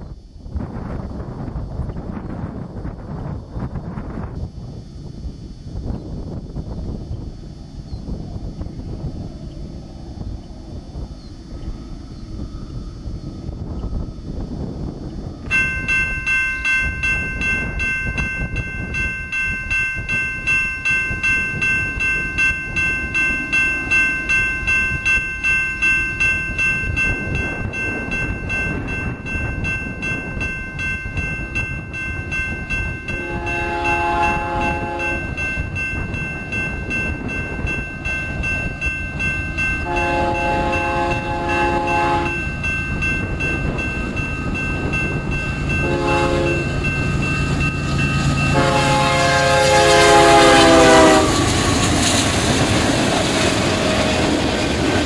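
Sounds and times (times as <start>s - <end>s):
diesel locomotives rumbling: 0.0s - 55.0s
high pulsing ringing: 0.0s - 55.0s
train air horn blasts: 33.1s - 35.4s, 39.8s - 42.4s, 45.8s - 46.8s, 48.5s - 51.7s.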